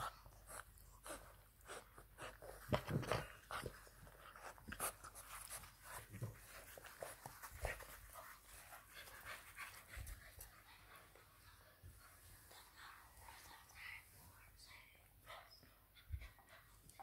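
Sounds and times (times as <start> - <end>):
puppy panting: 0.0 - 14.1, 15.2 - 17.0
small scuffling sounds: 0.4 - 10.8.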